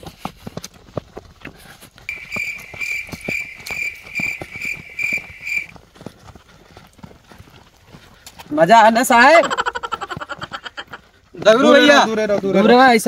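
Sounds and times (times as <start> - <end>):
footsteps on dirt path: 0.0 - 13.0
high pulsing beeps: 2.1 - 5.7.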